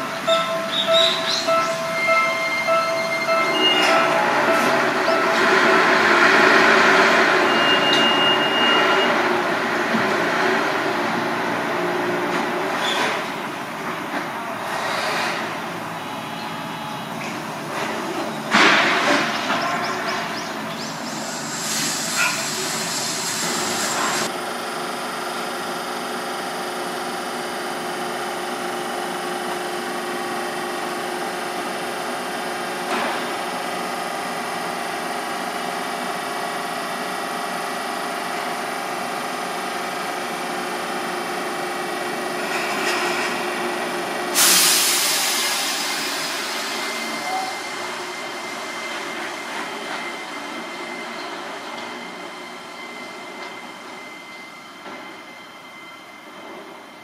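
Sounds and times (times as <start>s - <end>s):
train running hum: 0.0s - 57.0s
air hissing: 20.9s - 24.3s, 44.4s - 47.0s.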